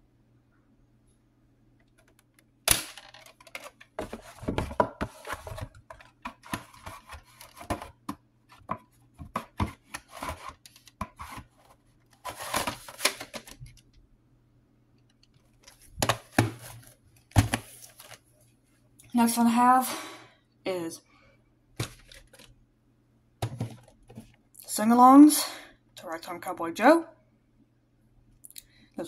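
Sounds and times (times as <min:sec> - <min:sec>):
plastic cases taps and rubbing: 0:03.0 - 0:11.5, 0:15.6 - 0:18.2, 0:23.4 - 0:24.3.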